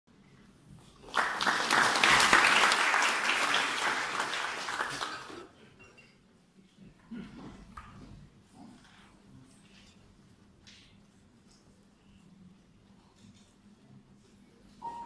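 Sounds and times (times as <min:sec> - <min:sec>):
audience applauding: 0:01.0 - 0:05.4.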